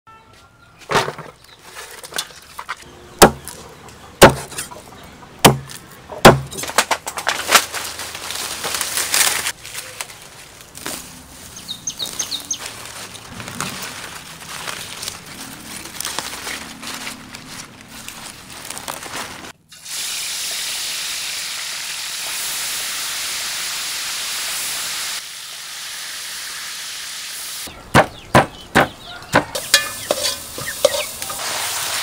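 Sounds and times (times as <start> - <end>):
rustling leaves and snapping stems: 5.4 - 19.6, 29.1 - 32.0
bird chirps: 11.5 - 12.7, 27.7 - 31.4.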